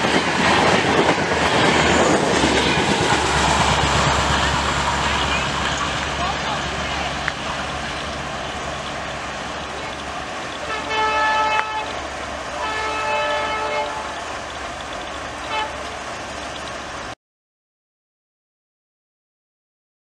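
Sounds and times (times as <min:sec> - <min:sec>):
passing train rumble: 0:00.0 - 0:17.2
locomotive horn blasts: 0:10.6 - 0:14.3, 0:15.4 - 0:15.9.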